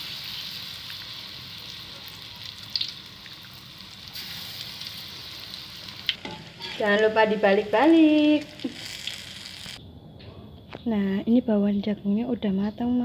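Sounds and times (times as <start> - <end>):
batter sizzling in hot oil: 0.0 - 9.8.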